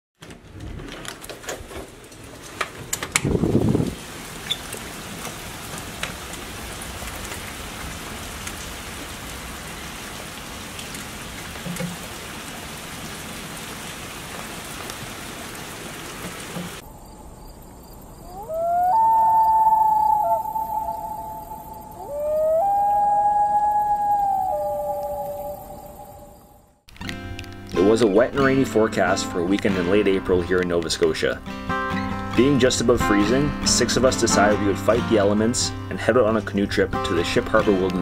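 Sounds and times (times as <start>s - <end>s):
rain falling on pavement: 1.3s - 16.9s
long wailing howl: 18.2s - 26.7s.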